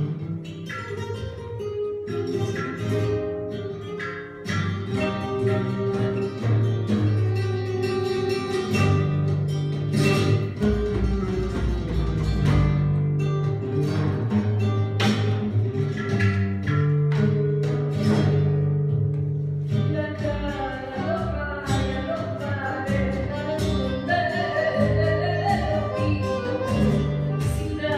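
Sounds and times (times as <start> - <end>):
acoustic guitar tango: 0.0 - 27.9
person singing: 20.0 - 27.9.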